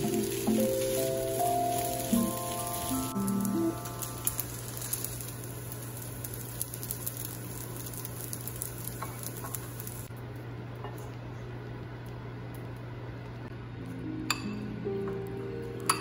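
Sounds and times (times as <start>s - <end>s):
rice sizzling in a frying pan: 0.0s - 10.1s.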